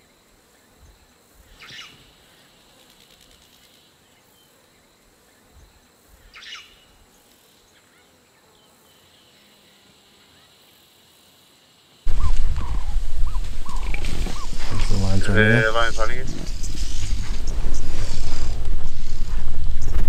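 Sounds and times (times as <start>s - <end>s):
dry bush ambience: 0.0s - 20.0s
short bird call: 12.1s - 17.0s
loud burst of animal calls: 12.1s - 19.8s.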